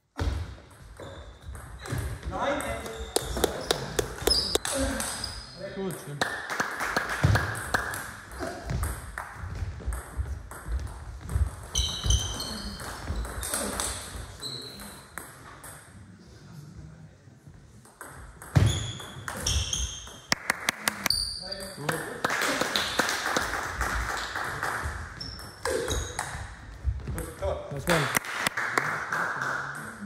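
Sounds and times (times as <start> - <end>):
shoes squeaking on floor: 0.9 - 5.6, 10.6 - 15.1, 18.5 - 20.3, 25.0 - 27.1.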